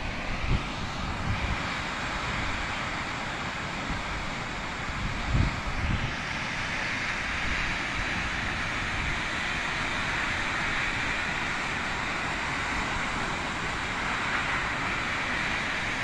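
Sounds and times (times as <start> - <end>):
waterfall roaring: 0.0 - 16.0
wind buffeting microphone: 3.8 - 11.3.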